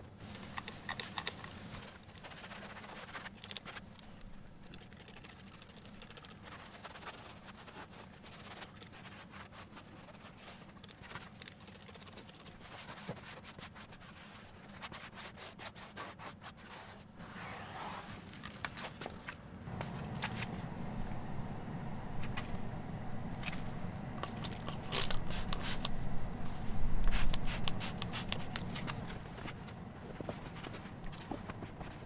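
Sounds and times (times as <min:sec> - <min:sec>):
cloth wiping a surface: 0:12.8 - 0:18.2.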